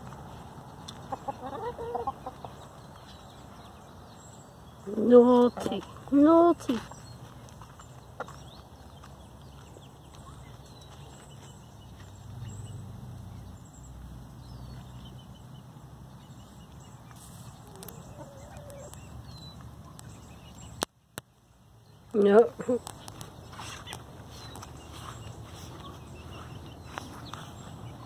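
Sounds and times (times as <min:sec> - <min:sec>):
chickens clucking softly: 0:00.8 - 0:03.0, 0:17.6 - 0:20.3.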